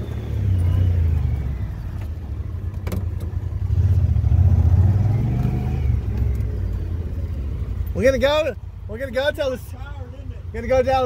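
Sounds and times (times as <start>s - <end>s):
engine under hard acceleration: 0.0s - 9.2s.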